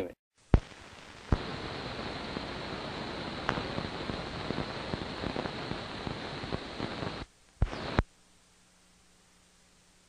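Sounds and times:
faint high whine: 0:00.0 - 0:10.0
film soundtrack hiss: 0:00.0 - 0:10.0
scattered crackles: 0:00.4 - 0:08.2.

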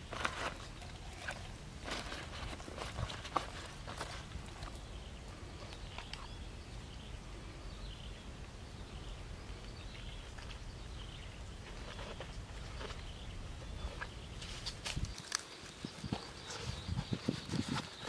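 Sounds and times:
rustles and clicks of handling: 0:00.0 - 0:06.3, 0:11.6 - 0:18.0
faint bird chirps: 0:04.0 - 0:18.0.

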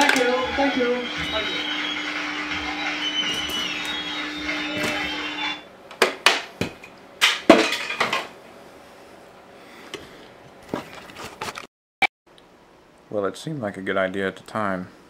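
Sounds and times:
steady held tone: 0:00.0 - 0:05.6.

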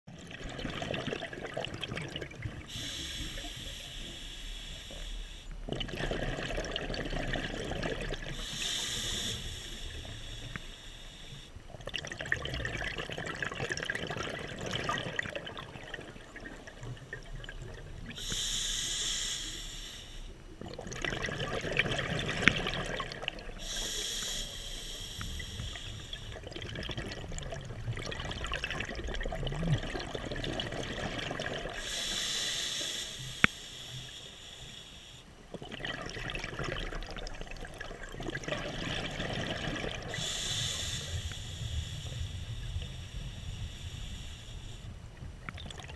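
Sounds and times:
exhaled bubbles gurgling: 0:00.1 - 0:10.6, 0:11.6 - 0:18.6, 0:20.5 - 0:32.4, 0:35.4 - 0:44.2, 0:44.8 - 0:45.9
diver breathing through regulator: 0:02.7 - 0:05.6, 0:08.3 - 0:11.6, 0:18.2 - 0:20.4, 0:23.6 - 0:26.4, 0:31.8 - 0:35.3, 0:40.0 - 0:45.0.

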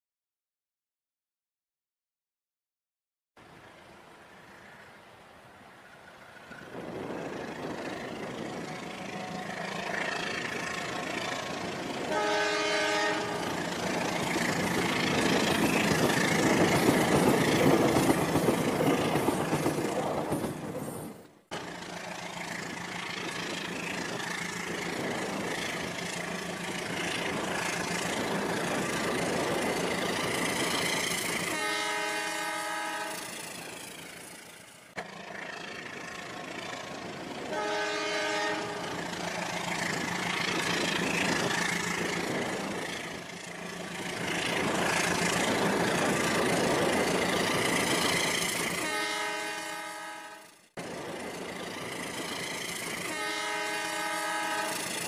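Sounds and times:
toy train horn: 0:12.1 - 0:13.6, 0:31.5 - 0:33.3, 0:37.5 - 0:39.0, 0:48.8 - 0:50.6, 0:53.0 - 0:55.0.

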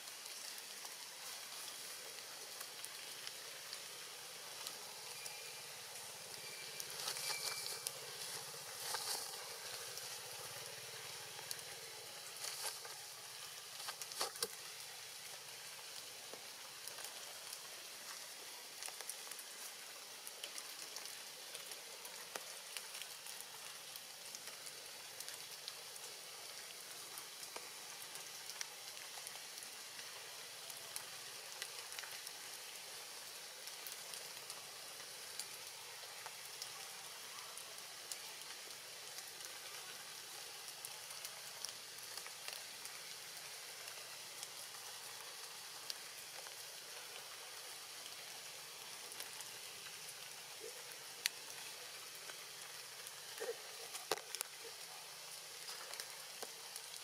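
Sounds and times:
light rain on foliage: 0:00.0 - 0:57.0
raindrops ticking: 0:00.0 - 0:57.0.

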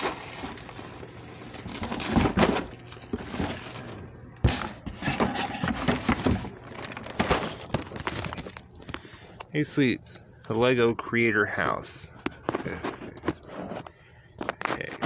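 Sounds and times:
packaging rustling and scraping: 0:00.0 - 0:09.0, 0:12.3 - 0:15.0.

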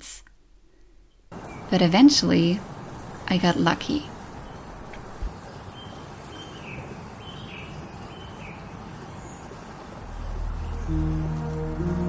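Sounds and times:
steady hiss: 0:01.3 - 0:12.0
high insect drone: 0:10.0 - 0:12.0.

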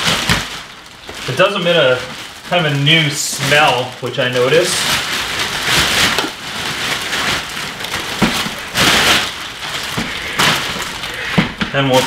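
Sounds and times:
plastic wrapping crinkling: 0:00.0 - 0:12.0.

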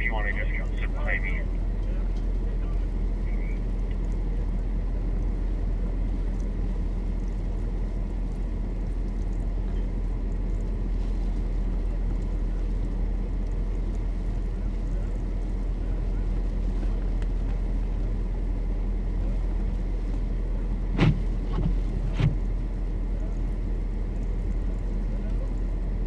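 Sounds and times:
car engine idling inside cabin: 0:00.0 - 0:26.0.

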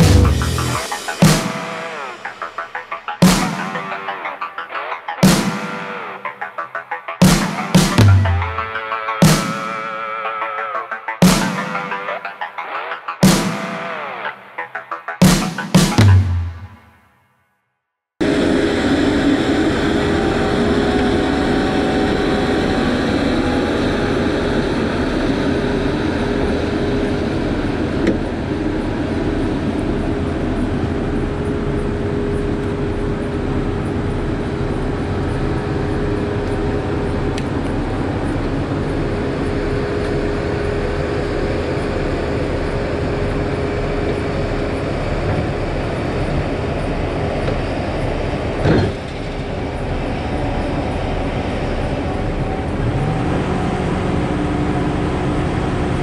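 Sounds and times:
heavy diesel engine running: 0:00.0 - 0:01.0, 0:33.6 - 0:56.0
steady whine: 0:00.0 - 0:16.9.

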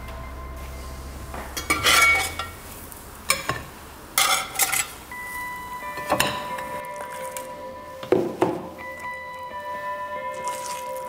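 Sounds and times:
metal spatula scraping skillet: 0:01.6 - 0:02.6
spatula clinking: 0:01.6 - 0:02.6, 0:03.3 - 0:05.0.

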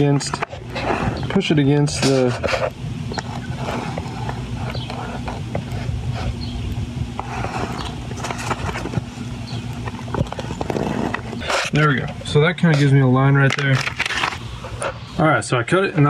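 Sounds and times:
low mechanical hum: 0:00.0 - 0:16.0
newspaper rustling: 0:07.2 - 0:15.0.

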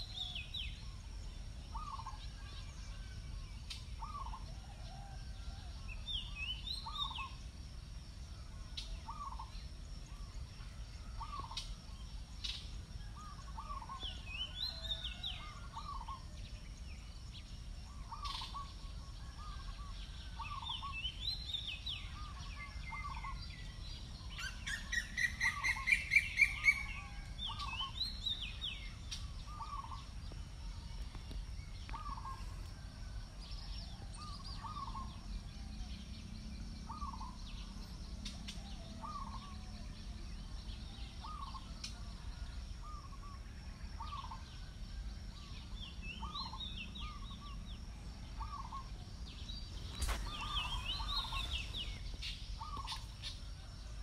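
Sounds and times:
birds calling: 0:24.4 - 0:30.1, 0:31.1 - 0:32.7, 0:41.2 - 0:41.7, 0:48.3 - 0:53.6
bird rapid rising notes: 0:49.6 - 0:53.1
bird warbling: 0:49.8 - 0:53.1.

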